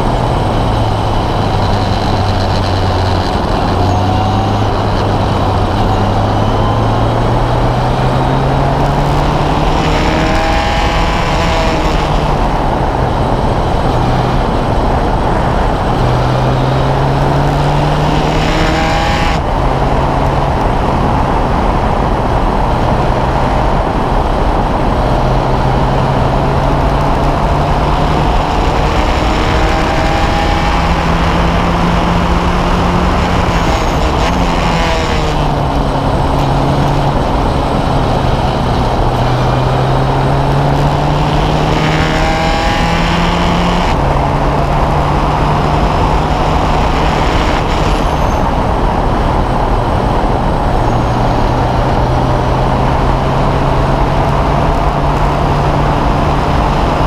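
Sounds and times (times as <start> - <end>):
race car engine: 0.0 - 57.0
wind and road noise: 0.0 - 57.0.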